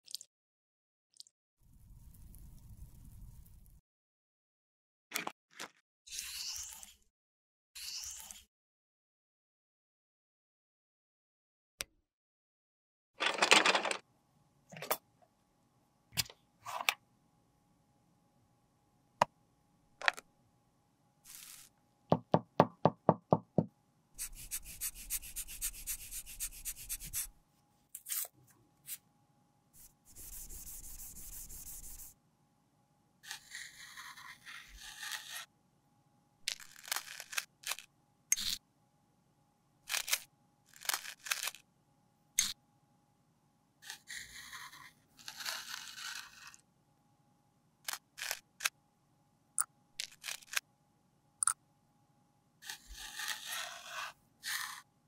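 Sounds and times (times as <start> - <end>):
metal tool scratching powder: 21.3 - 21.7, 24.2 - 27.3, 29.8 - 32.1, 33.2 - 35.5, 43.8 - 46.6, 52.6 - 54.9.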